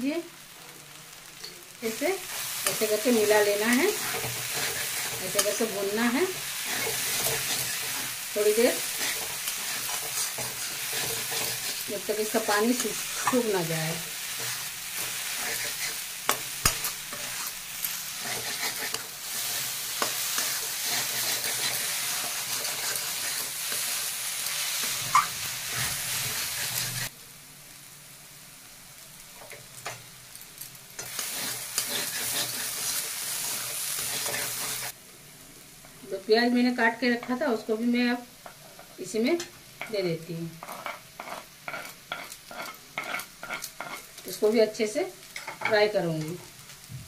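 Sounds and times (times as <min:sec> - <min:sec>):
food sizzling in oil: 0:00.0 - 0:47.0
metal spatula scraping pan: 0:02.3 - 0:13.6, 0:14.2 - 0:27.1, 0:31.0 - 0:34.9, 0:40.6 - 0:44.1.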